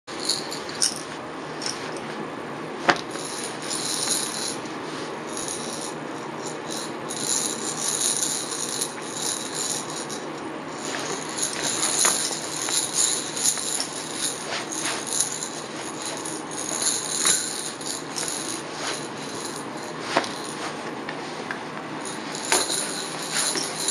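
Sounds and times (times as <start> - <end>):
plastic rattle shaking: 3.0 - 4.7, 5.3 - 20.7, 22.1 - 23.9.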